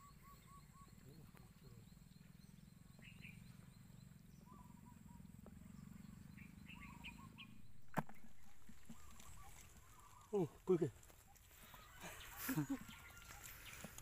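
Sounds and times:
faint bird chirps: 0.0s - 14.0s
low steady rumble: 1.8s - 10.0s.

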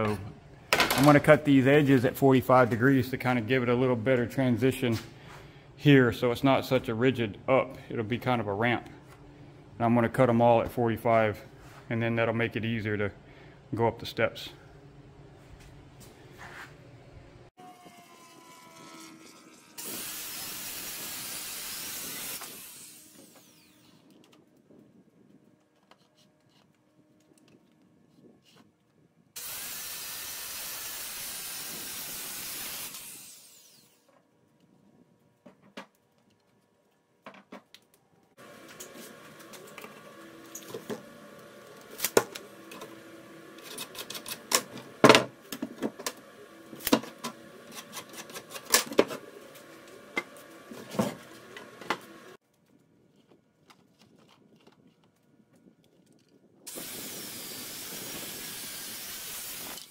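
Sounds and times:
circular saw cutting wood: 17.6s - 24.1s, 29.4s - 34.1s, 38.4s - 45.0s, 45.9s - 52.4s, 56.7s - 59.9s.

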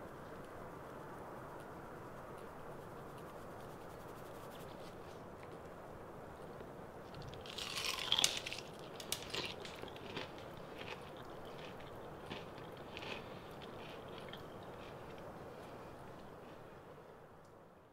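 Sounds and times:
fried chicken crunching: 7.1s - 15.3s.

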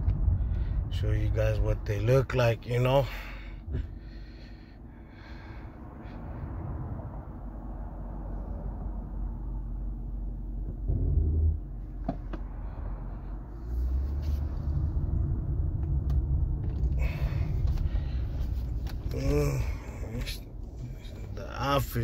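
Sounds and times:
car interior road and engine noise: 0.0s - 22.0s.

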